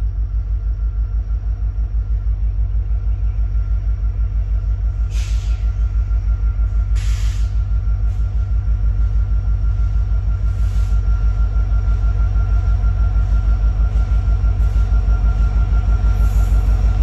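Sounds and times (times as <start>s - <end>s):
diesel locomotive engine rumbling: 0.0s - 17.0s
short hisses: 5.1s - 5.7s.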